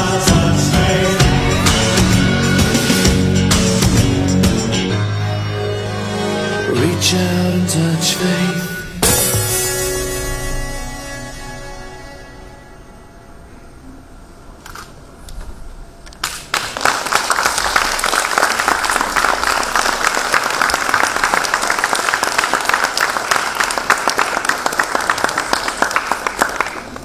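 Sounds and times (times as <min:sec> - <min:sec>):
audience clapping: 0:16.1 - 0:27.0.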